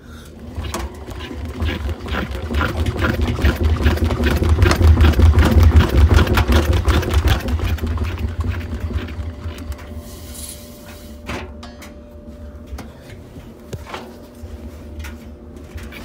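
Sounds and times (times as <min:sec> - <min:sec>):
washing machine drum rumbling: 0:00.3 - 0:10.0.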